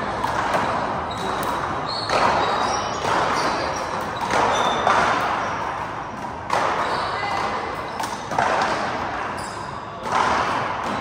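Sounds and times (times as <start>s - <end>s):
sneakers squeaking on floor: 0.2s - 5.9s, 6.5s - 11.0s
handball hitting wall: 0.2s - 7.4s, 8.0s - 11.0s.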